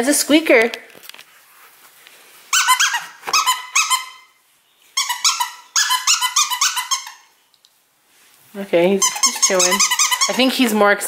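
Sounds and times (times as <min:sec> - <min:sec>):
dog toy squeaking: 0:02.5 - 0:04.4, 0:05.0 - 0:07.3, 0:08.9 - 0:10.7.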